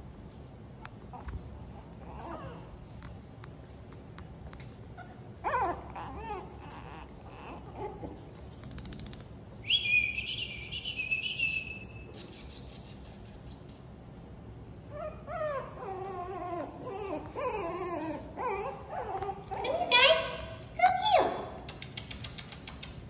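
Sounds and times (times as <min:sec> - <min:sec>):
puppies whining: 0:00.9 - 0:03.2, 0:04.7 - 0:08.6, 0:14.7 - 0:20.0.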